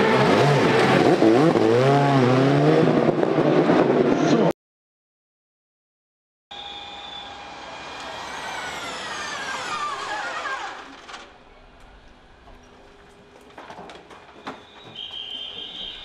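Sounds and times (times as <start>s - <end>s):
electric car whining: 6.6s - 12.8s.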